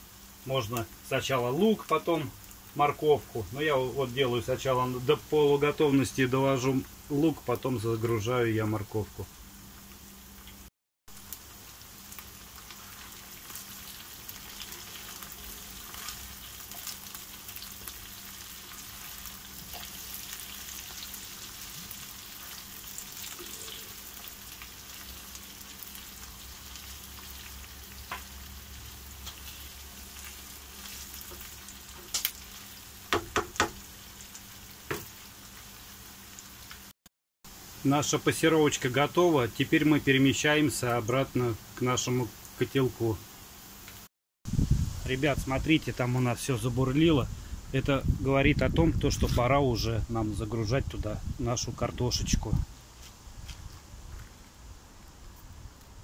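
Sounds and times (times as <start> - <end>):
vegetables sizzling in a frying pan: 0.0 - 36.9, 37.5 - 46.3
spatula stirring: 12.6 - 22.6
sharp knocks: 33.1 - 33.8.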